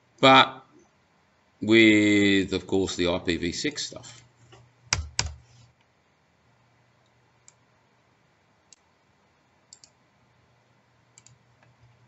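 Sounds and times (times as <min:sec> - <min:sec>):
faint computer mouse clicks: 0:09.7 - 0:10.0, 0:11.2 - 0:12.0.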